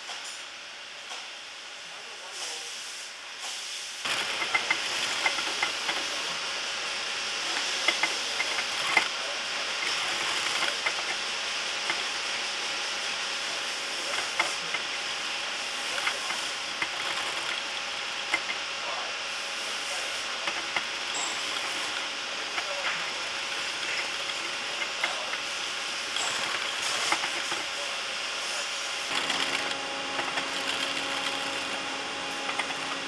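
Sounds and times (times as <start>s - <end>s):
sewing machine running: 4.0s - 6.4s, 7.4s - 12.4s, 13.6s - 18.6s, 20.4s - 27.8s, 29.1s - 33.0s.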